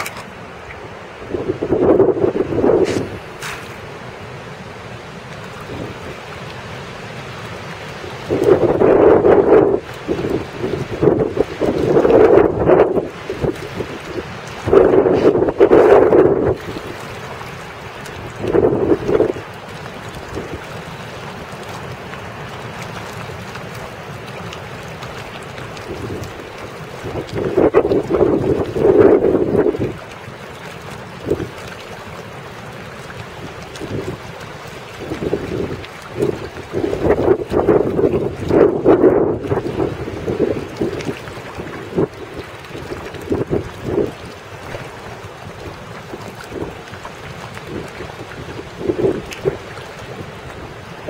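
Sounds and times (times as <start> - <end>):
wind buffeting microphone: 1.1 - 3.7, 8.1 - 17.4, 18.1 - 20.7, 25.3 - 30.1, 33.4 - 51.0.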